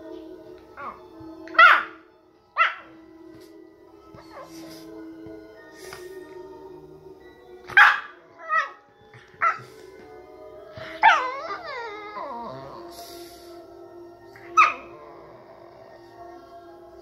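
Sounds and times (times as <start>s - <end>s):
background music: 0.0s - 17.0s
puppy barking: 0.8s - 2.0s, 2.6s - 3.0s, 7.7s - 8.8s, 9.4s - 9.6s, 11.0s - 11.6s, 14.5s - 14.9s.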